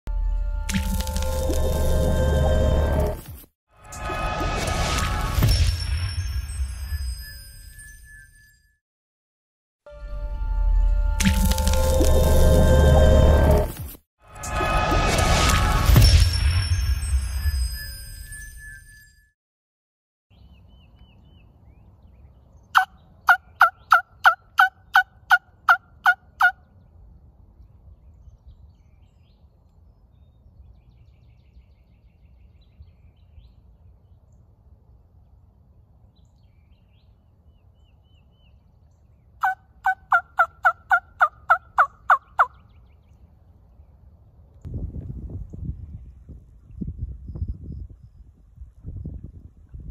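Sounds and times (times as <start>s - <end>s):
turkey yelps: 22.8s - 26.6s, 39.4s - 42.6s.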